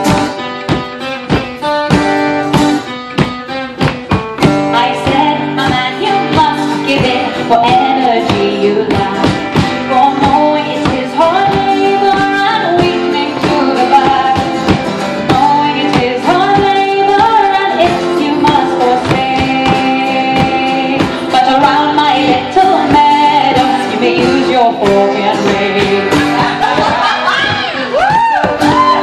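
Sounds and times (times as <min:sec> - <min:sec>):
acoustic guitar strumming: 0:00.0 - 0:29.0
woman singing folk song: 0:00.0 - 0:29.0.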